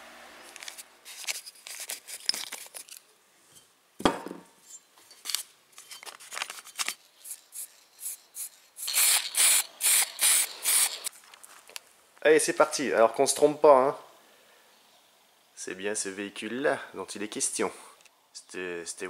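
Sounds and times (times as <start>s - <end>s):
aerosol spray can hissing: 7.2s - 11.1s.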